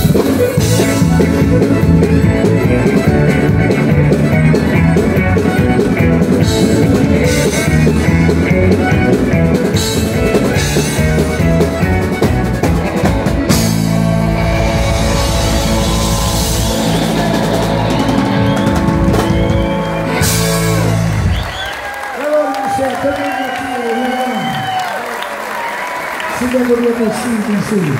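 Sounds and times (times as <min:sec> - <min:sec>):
fiddle: 0:00.0 - 0:21.5
bass: 0:00.0 - 0:22.1
electric and acoustic guitars: 0:00.0 - 0:22.2
drums: 0:00.0 - 0:27.9.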